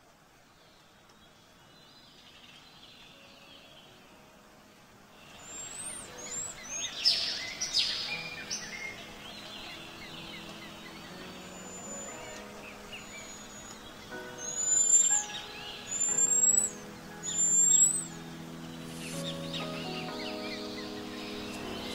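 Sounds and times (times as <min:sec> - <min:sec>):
faint hiss: 0:00.0 - 0:21.9
soft sustained music notes: 0:00.0 - 0:21.9
birds chirping and whistling: 0:05.2 - 0:21.9.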